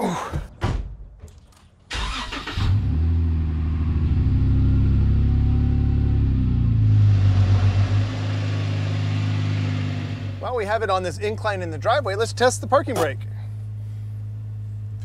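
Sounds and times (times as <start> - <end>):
engine starter cranking: 1.9 - 3.0
car engine idling: 3.1 - 15.0.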